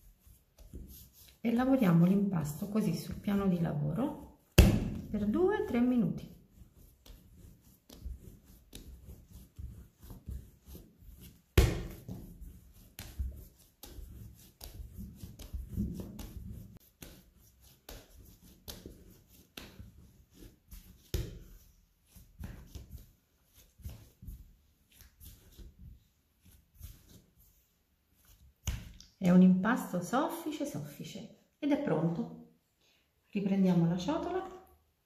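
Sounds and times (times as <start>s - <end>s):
dough slapping on steel surface: 0.0s - 26.0s, 28.5s - 29.1s.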